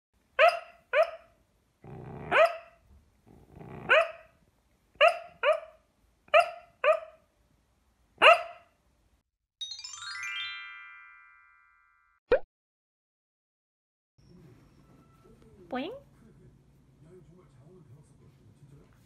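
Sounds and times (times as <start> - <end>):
puppy barking: 0.4 - 1.4, 2.3 - 2.8, 3.8 - 4.3, 5.0 - 7.2, 8.2 - 8.7
puppy low growl: 1.8 - 2.4, 3.2 - 4.0.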